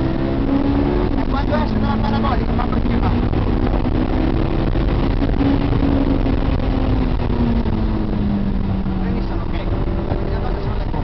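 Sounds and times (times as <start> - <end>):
car engine pulling hard: 0.0 - 11.0
road and wind noise: 0.0 - 11.0.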